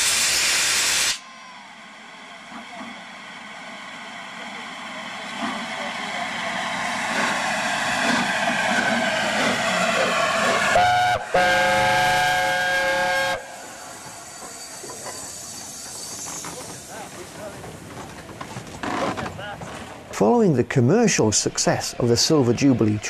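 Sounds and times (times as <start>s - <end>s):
steam locomotive running: 0.0s - 23.0s
locomotive chime whistle: 10.7s - 17.0s.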